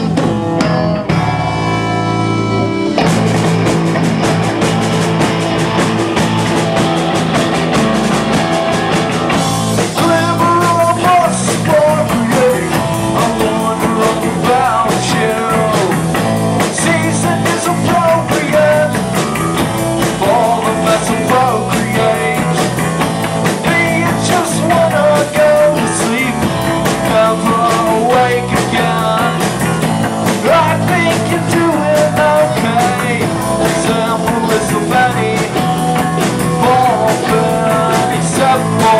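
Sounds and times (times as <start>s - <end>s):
distorted electric guitars: 0.0s - 38.9s
drum kit: 0.0s - 38.9s
person singing: 9.8s - 19.0s, 20.0s - 22.8s, 23.6s - 38.9s.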